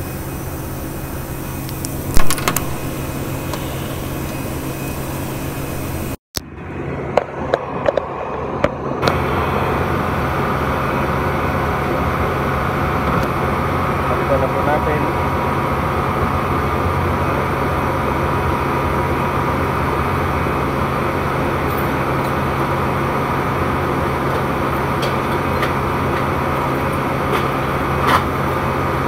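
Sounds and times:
machinery hum: 0.0s - 29.0s
sharp click: 1.7s - 2.8s.

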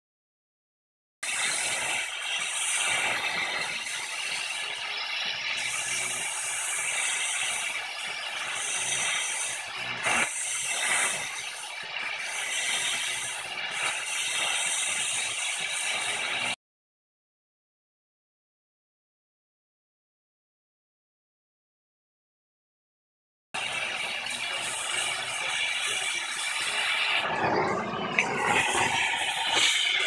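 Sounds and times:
torch flame hissing: 1.2s - 16.6s, 23.6s - 30.0s.

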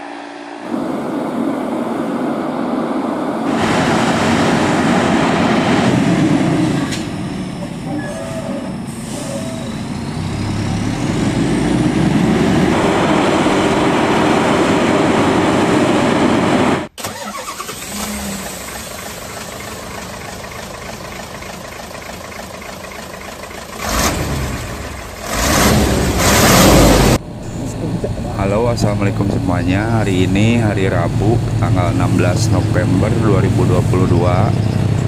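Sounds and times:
loud rushing swells: 0.0s - 7.9s, 8.8s - 16.9s
steady engine rumble: 0.0s - 35.0s
truck diesel engine under load: 0.0s - 35.0s.

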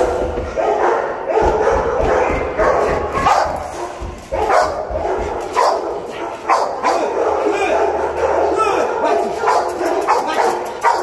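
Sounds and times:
dog barking: 0.0s - 11.0s.

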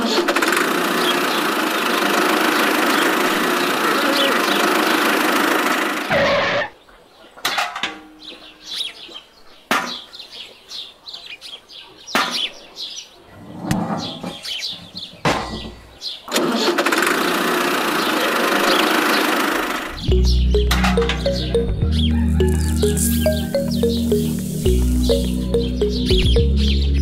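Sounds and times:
toy tractor motor running: 0.0s - 6.1s, 16.3s - 20.0s.

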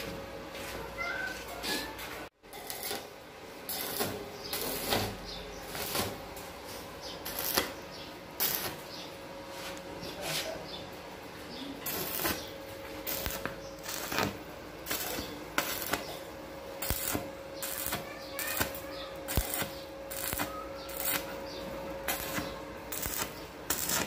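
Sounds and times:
arc welding crackle: 2.4s - 9.1s, 11.7s - 24.0s.

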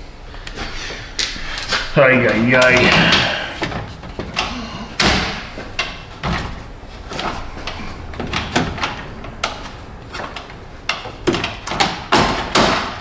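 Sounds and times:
hard plastic knocks and clunks: 2.6s - 13.0s.

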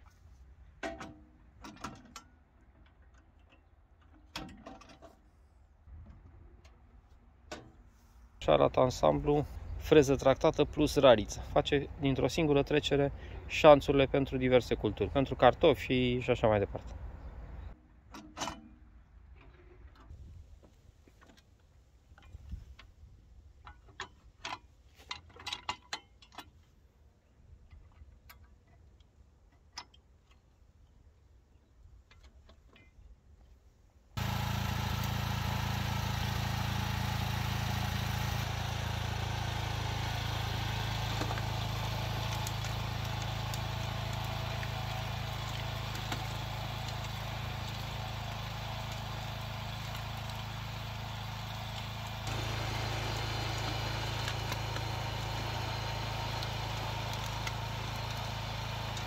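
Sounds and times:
tractor engine running: 34.2s - 59.0s.

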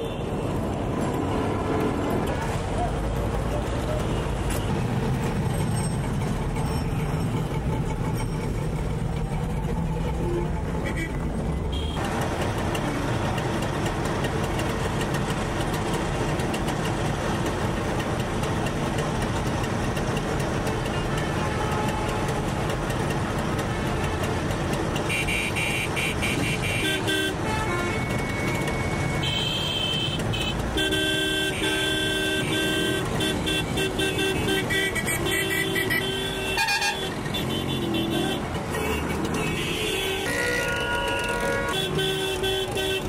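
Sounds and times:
vehicle engines running: 0.0s - 43.0s
vehicle horns honking: 10.2s - 12.0s, 20.9s - 22.4s, 25.0s - 43.0s.

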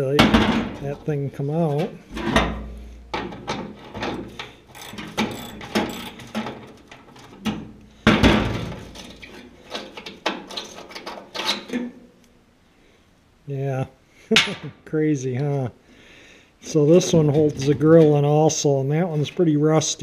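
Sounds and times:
metal tools clattering on metal: 1.7s - 7.5s
socket ratchet clicking: 4.4s - 6.3s.

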